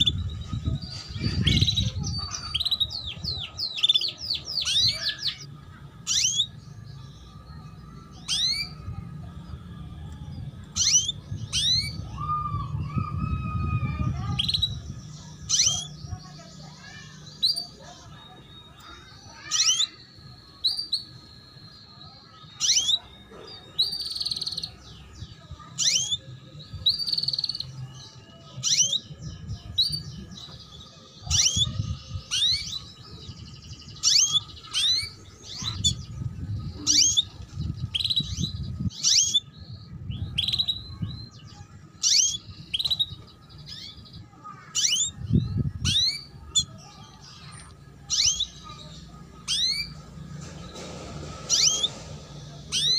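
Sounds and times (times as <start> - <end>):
canary chirping: 0.0 - 52.9.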